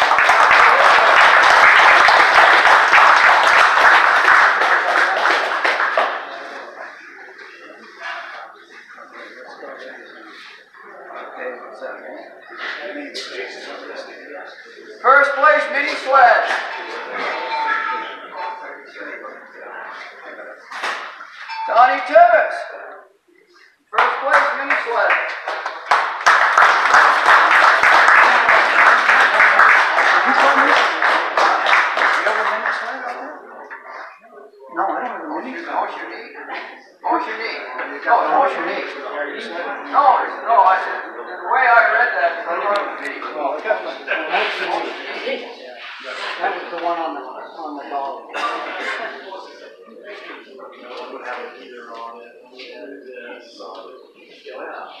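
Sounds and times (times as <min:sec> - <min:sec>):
crowd applauding: 0:00.0 - 0:06.8, 0:24.0 - 0:33.4.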